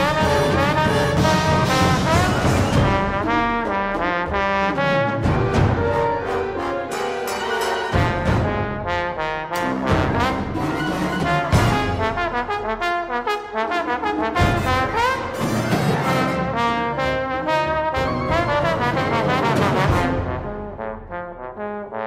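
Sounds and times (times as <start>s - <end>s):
sharp percussive accents: 0.0s - 12.2s
trombone and wind ensemble: 0.0s - 22.0s.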